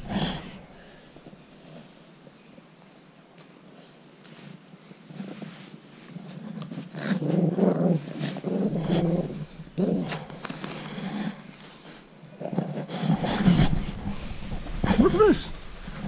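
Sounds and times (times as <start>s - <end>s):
puppy play-growling: 5.0s - 16.0s.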